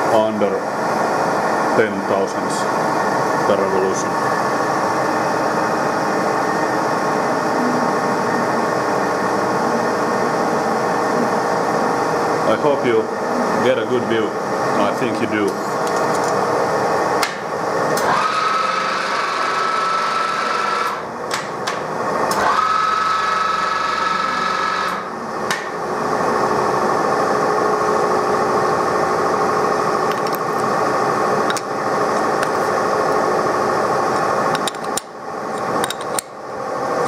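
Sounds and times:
lathe humming: 0.0s - 21.1s, 22.0s - 37.0s
high whine of lathe carriage: 0.0s - 37.0s
clicks and knocks of levers: 34.2s - 36.3s.

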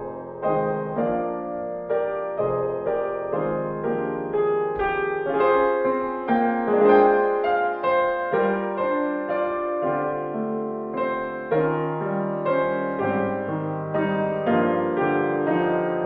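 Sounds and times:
solo piano music: 0.0s - 16.0s.

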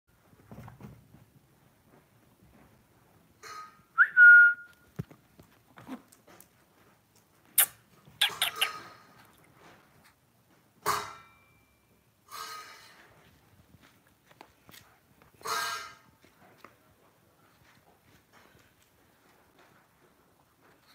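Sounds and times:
rising whistle call: 4.0s - 4.7s.

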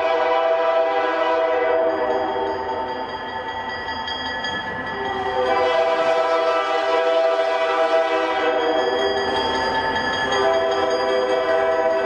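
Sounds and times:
locomotive air horn: 0.0s - 2.1s, 5.4s - 9.0s.

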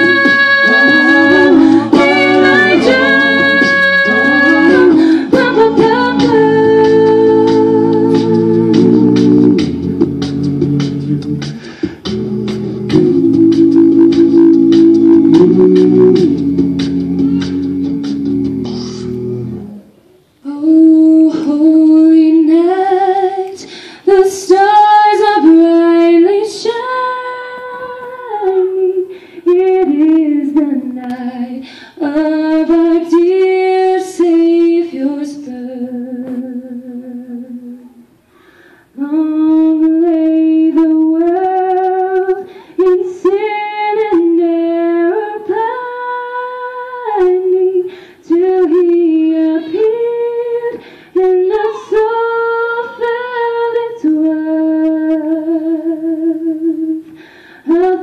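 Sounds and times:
a cappella group singing: 0.0s - 19.8s, 29.5s - 37.9s, 39.0s - 57.0s
woman singing long held notes: 0.0s - 19.8s, 20.4s - 38.0s, 39.0s - 57.0s.

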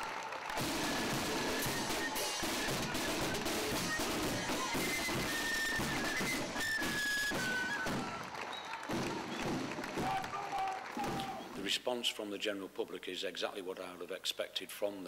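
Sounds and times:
marching band drums beating: 0.4s - 11.5s.

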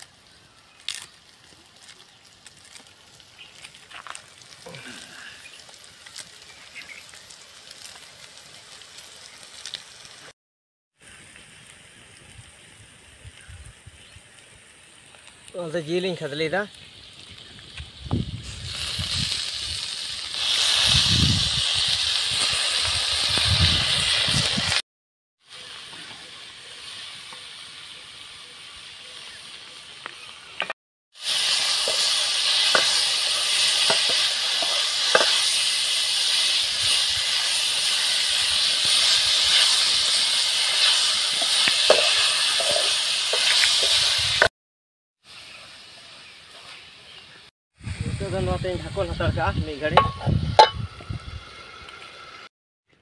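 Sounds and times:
meat sizzling in hot oil: 0.0s - 10.4s, 11.0s - 24.8s, 25.4s - 30.4s, 31.1s - 44.5s, 45.2s - 52.5s
ladle scraping and knocking pan: 33.8s - 35.4s, 41.4s - 44.0s, 50.0s - 50.9s.

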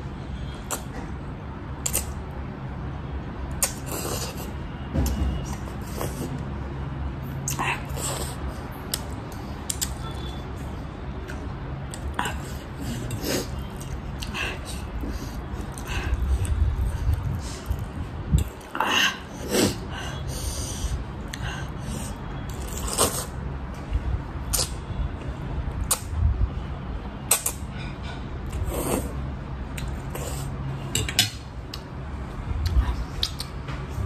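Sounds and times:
slurping and chewing noodles: 3.6s - 4.6s, 21.3s - 23.4s.

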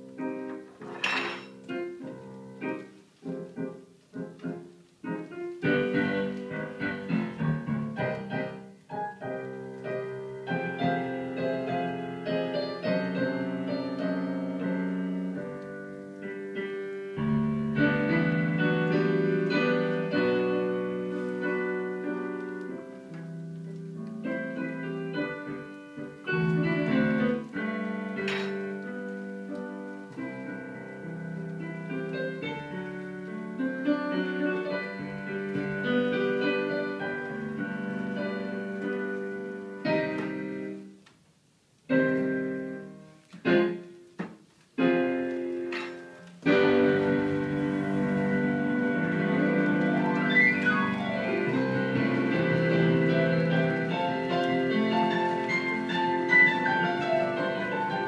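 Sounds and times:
piano music: 0.0s - 41.0s, 41.8s - 58.0s.

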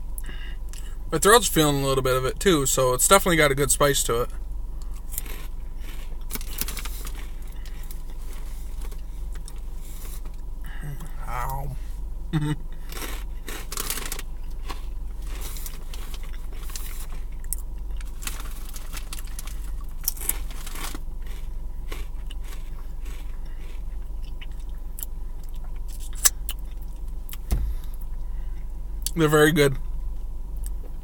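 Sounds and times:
steady low hum: 0.0s - 31.0s
person chewing crunchy snacks: 4.8s - 9.6s, 12.4s - 27.9s.

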